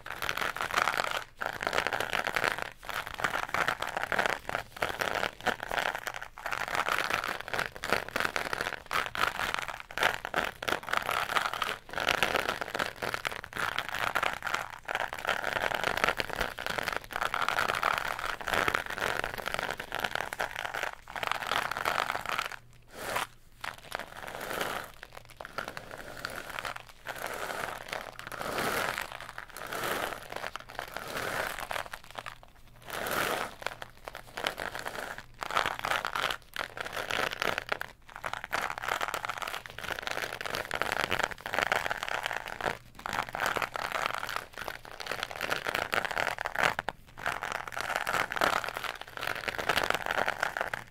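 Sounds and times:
cardboard tube crinkly scraping: 16.9s - 36.4s.

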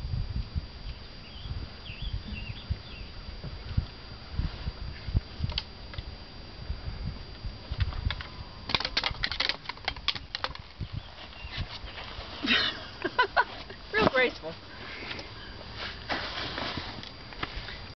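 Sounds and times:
trekking pole tips clicking on rock: 7.8s - 11.0s.

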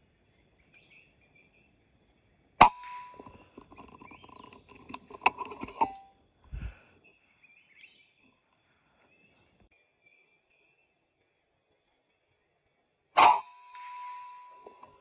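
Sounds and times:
small birds chirping: 0.0s - 13.1s
air rifle shot: 2.6s - 3.4s, 13.2s - 14.8s
rustling and clattering: 3.1s - 6.0s.

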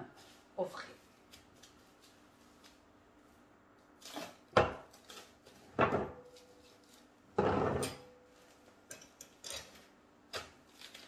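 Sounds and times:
cling film crinkling: 10.6s - 11.0s.

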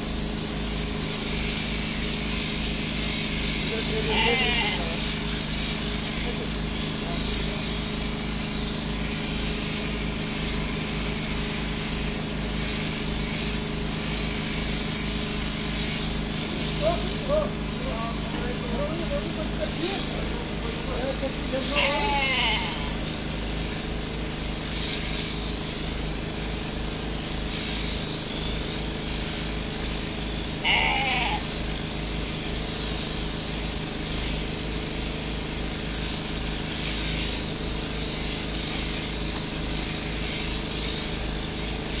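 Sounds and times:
shearing machine humming: 0.0s - 42.0s
sheep bleating: 3.8s - 5.1s, 21.5s - 23.0s, 30.6s - 31.6s.

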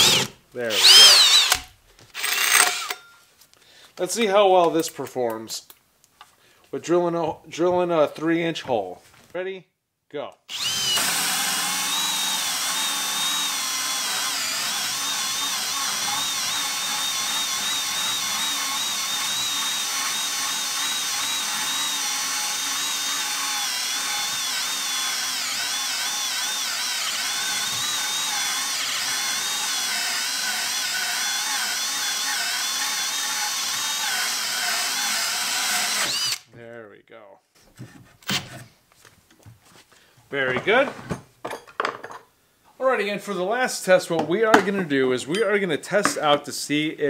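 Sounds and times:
drill motor whining: 0.0s - 3.0s, 10.5s - 36.5s.

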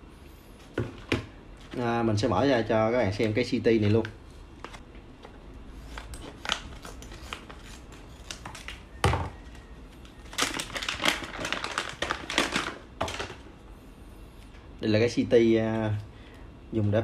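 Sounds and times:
plastic packaging crinkling: 5.9s - 13.5s.

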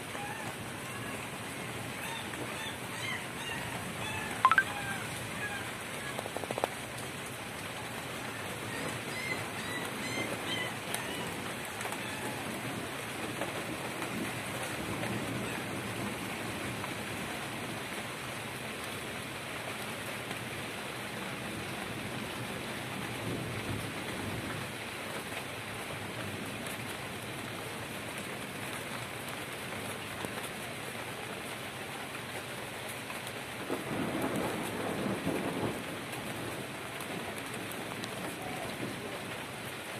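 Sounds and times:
rain pattering: 0.0s - 39.9s
distant thunder rumbling: 33.7s - 38.2s.

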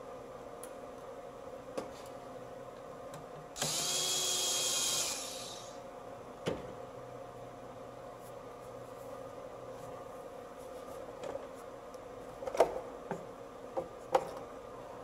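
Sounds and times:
power tool motor whine: 3.6s - 5.8s.

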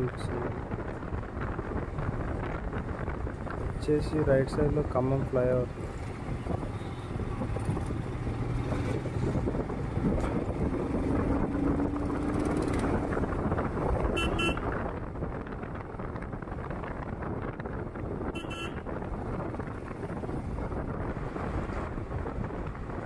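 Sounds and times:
wind and motorcycle engine noise: 0.0s - 23.0s
vehicle horn beep: 14.1s - 14.6s, 18.4s - 18.8s.

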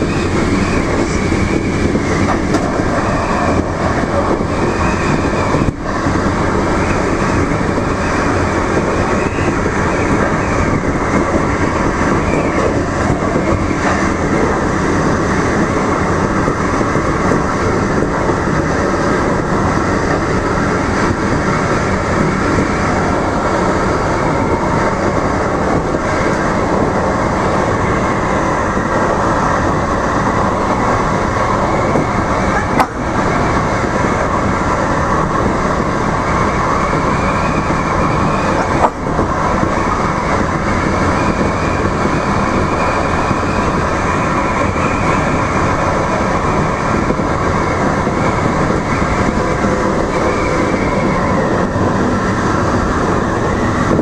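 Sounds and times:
light rail train running: 0.0s - 54.0s.

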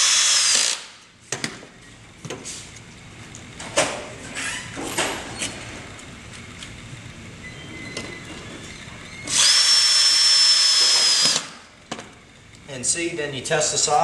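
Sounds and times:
cordless drill whining: 0.0s - 0.8s, 9.3s - 11.5s.

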